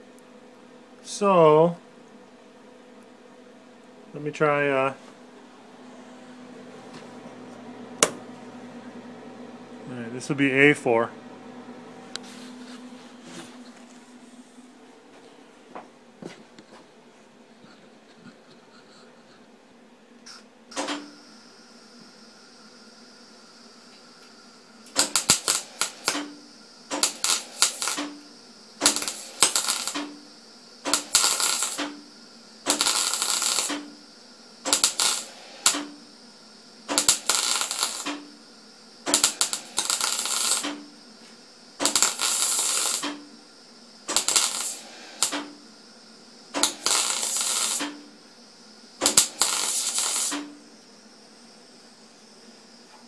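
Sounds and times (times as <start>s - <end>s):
welder arc crackling: 6.3s - 9.0s, 23.3s - 36.2s, 36.8s - 51.0s.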